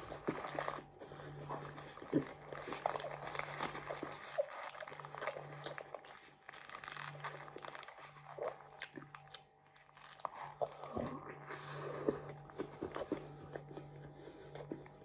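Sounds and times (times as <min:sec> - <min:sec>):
paper wrapper crinkling: 0:00.0 - 0:00.9, 0:01.6 - 0:11.4
low steady hum: 0:00.0 - 0:15.0
chewing with wet mouth clicks: 0:01.8 - 0:13.9.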